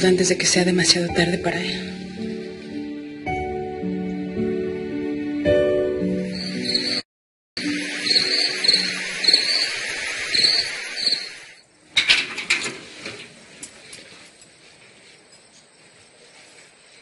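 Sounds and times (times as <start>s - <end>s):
crickets chirping: 6.2s - 7.0s, 7.6s - 12.0s, 13.4s - 17.0s.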